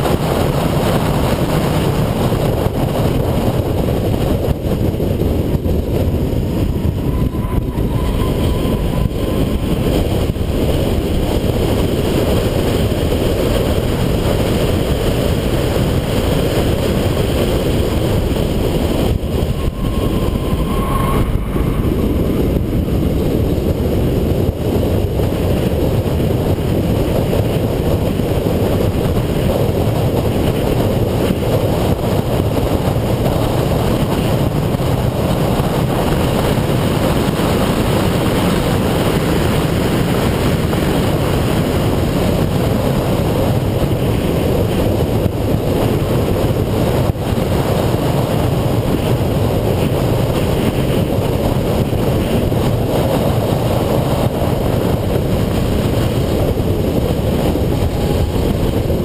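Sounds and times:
road and wind noise: 0.0 - 59.0
car engine: 15.9 - 25.6.

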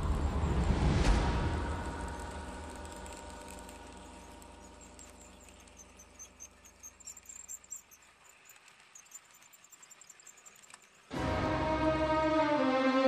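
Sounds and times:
low train hum: 0.0 - 13.0
model train wheels clicking: 1.7 - 11.1.

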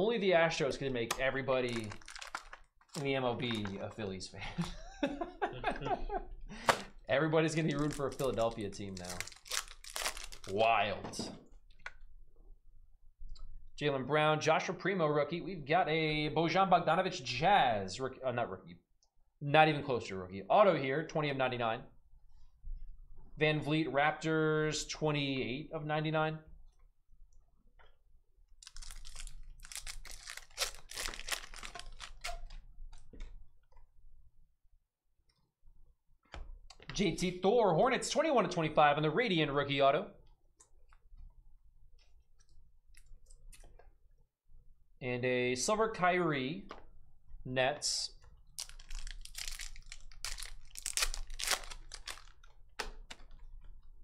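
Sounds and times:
plastic wrapper tearing and crinkling: 1.6 - 3.8, 7.6 - 10.7, 28.6 - 32.6, 48.5 - 53.4.

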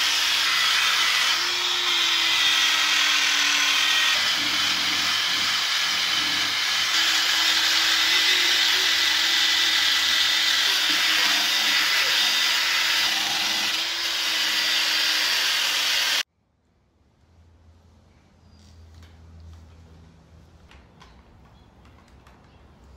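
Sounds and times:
drill motor whine: 0.0 - 16.2.

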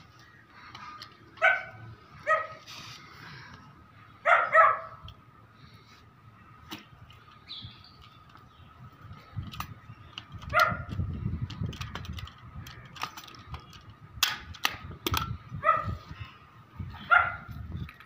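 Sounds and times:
dog barking: 1.4 - 2.6, 4.2 - 5.0, 15.6 - 16.0, 17.1 - 17.5.

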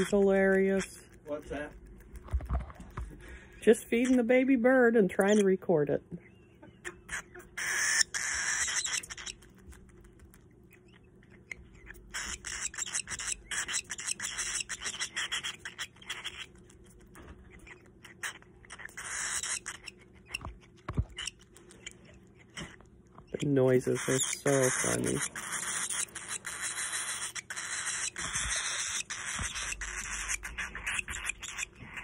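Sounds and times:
baby bird hissing begging calls: 7.6 - 9.3.

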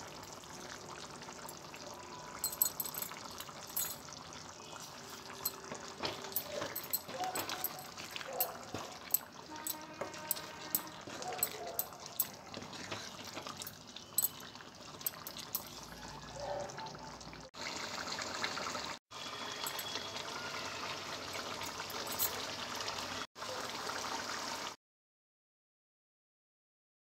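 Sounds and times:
wooden spoon stirring clicks: 5.5 - 14.4
curry bubbling in a pot: 12.0 - 15.0.

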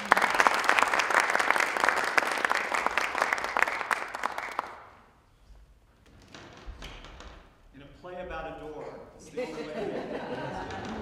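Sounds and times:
audience applauding: 0.0 - 5.0, 10.2 - 11.0.

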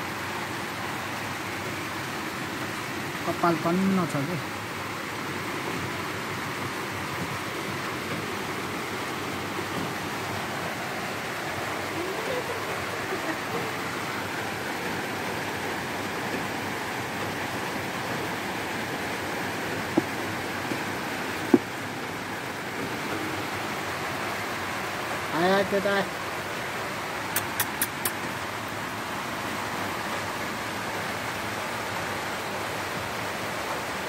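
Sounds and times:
sharp clicks: 27.3 - 28.3.

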